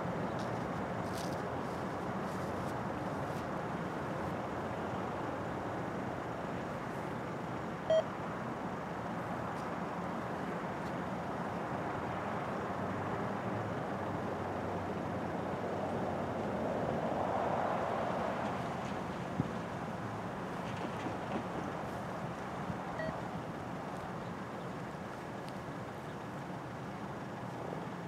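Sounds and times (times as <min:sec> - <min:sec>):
cars driving past: 0:12.0 - 0:22.0.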